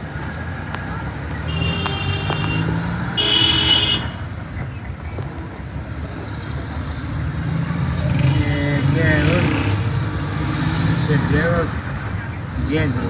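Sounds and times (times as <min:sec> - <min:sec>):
vehicle engine and road rumble: 0:00.0 - 0:13.0
vehicle horn: 0:01.5 - 0:04.2.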